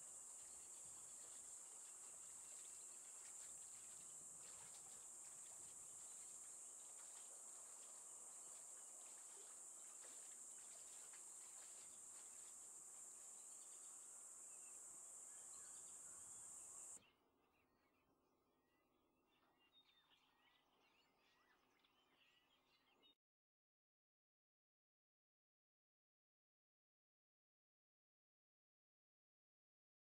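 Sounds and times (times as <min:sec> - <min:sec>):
high-pitched insect chorus: 0:00.0 - 0:17.0
faint bird chirps: 0:00.0 - 0:18.2.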